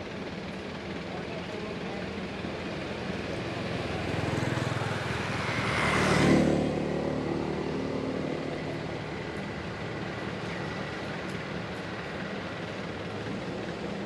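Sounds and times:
motorbike passing by: 0:03.0 - 0:11.7.

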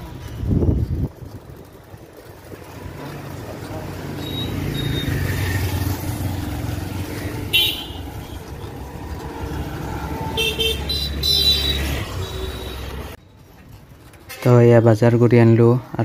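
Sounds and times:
wind on microphone: 0:00.0 - 0:02.7
traffic engines rumbling: 0:00.0 - 0:16.0.

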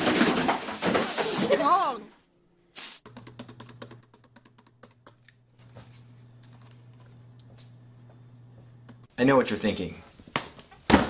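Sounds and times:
computer keyboard typing: 0:03.1 - 0:05.2.

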